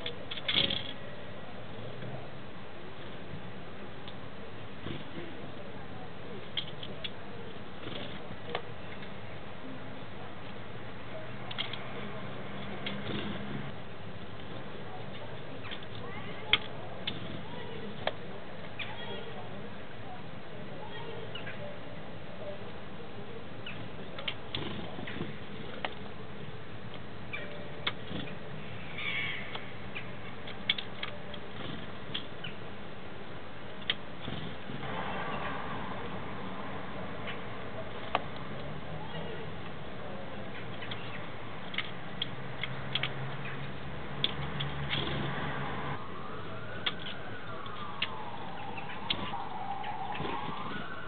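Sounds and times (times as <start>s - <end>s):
siren wailing: 45.9s - 51.0s.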